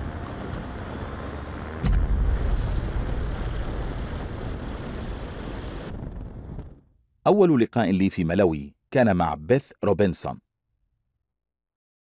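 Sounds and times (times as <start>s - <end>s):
engine roar: 0.0s - 5.9s
rushing wind: 0.0s - 6.8s
loud thump: 1.8s - 3.3s.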